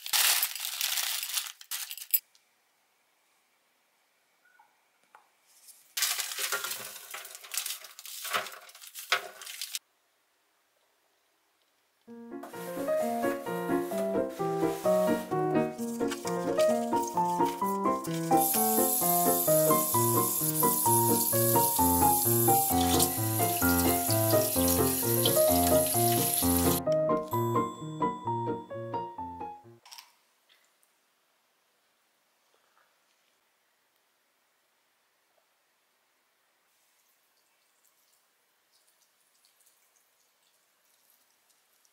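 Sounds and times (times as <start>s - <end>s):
powder pouring into a sink: 6.0s - 9.8s, 16.0s - 26.8s
background music: 12.1s - 29.8s.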